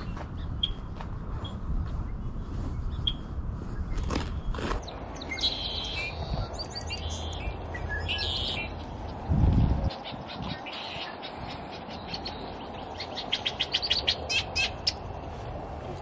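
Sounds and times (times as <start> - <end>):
small birds singing: 0.0 - 15.5
wind on microphone: 9.0 - 12.6.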